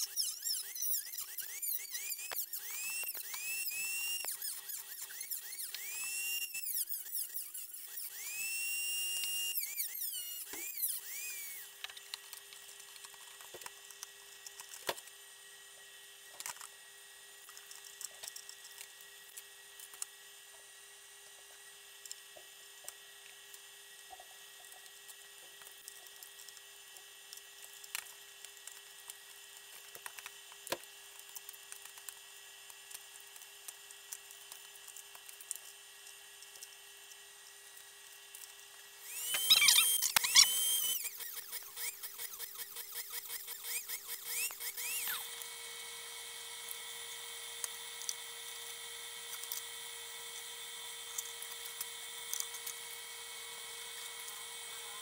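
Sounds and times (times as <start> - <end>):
rotary tool whining: 0.0 - 12.3, 38.4 - 55.0.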